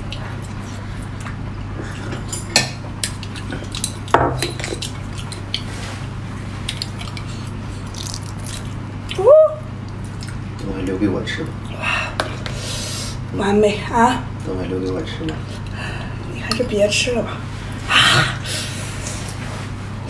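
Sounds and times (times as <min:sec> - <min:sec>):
steady low hum: 0:00.0 - 0:20.0
wet squishy sounds: 0:03.0 - 0:10.5.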